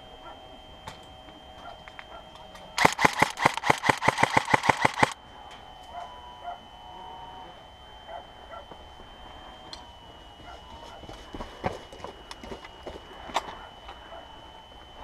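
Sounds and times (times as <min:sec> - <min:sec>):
airsoft pistol firing rapidly: 0:02.8 - 0:05.2.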